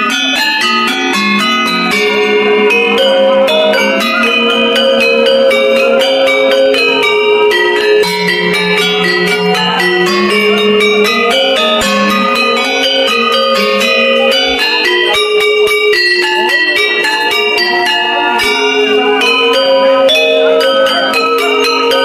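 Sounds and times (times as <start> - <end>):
metallophone ensemble playing: 0.0 - 22.0.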